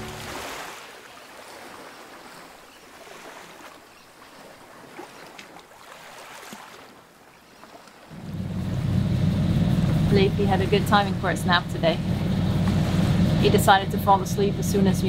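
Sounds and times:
small splashes: 0:00.0 - 0:08.3
water rushing along a hull: 0:00.0 - 0:15.0.

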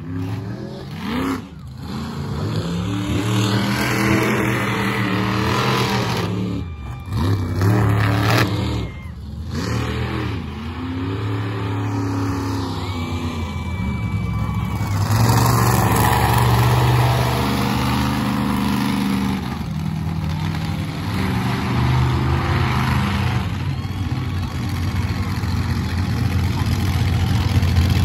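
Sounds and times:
truck engine revving hard: 0:00.0 - 0:28.0.

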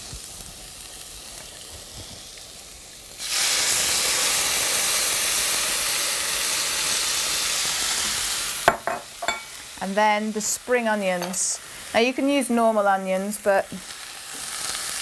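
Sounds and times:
liver sizzling in a frying pan: 0:00.0 - 0:15.0
loud hiss of steam: 0:01.8 - 0:09.7.

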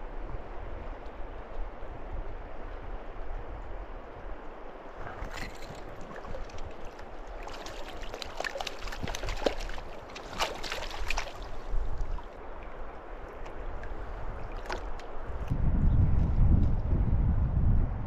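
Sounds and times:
river water flowing: 0:00.0 - 0:15.5
fish thrashing and splashing: 0:05.0 - 0:12.3.

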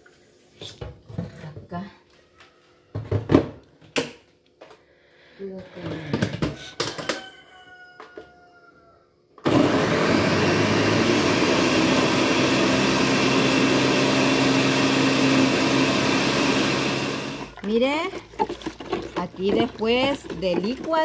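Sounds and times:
blender motor running: 0:09.4 - 0:17.6.

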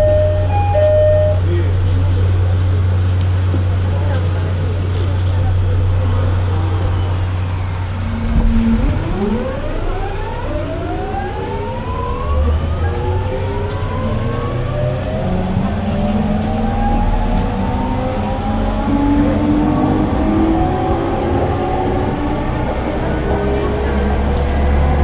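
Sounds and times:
train motors whining rising pitch: 0:06.3 - 0:24.8.

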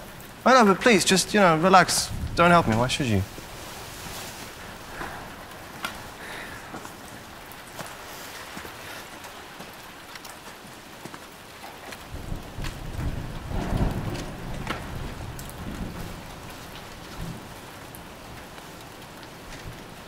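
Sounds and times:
thunder rolling: 0:00.0 - 0:07.5, 0:12.1 - 0:17.7
steady rain: 0:00.0 - 0:20.0.

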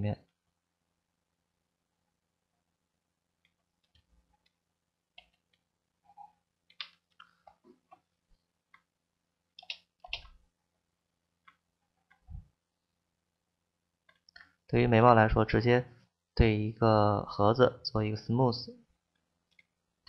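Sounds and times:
mouse clicks and keyboard taps: 0:09.6 - 0:10.4.

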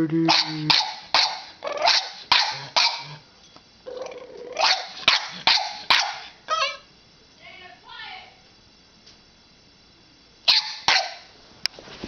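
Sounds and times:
puppy barking sharply: 0:00.3 - 0:03.2, 0:04.6 - 0:06.8, 0:10.5 - 0:11.3.

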